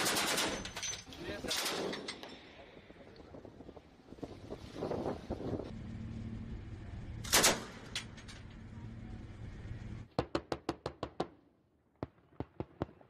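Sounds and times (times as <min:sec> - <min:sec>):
steady hum: 0:05.5 - 0:10.1
heavy machine gun fire: 0:07.2 - 0:08.2.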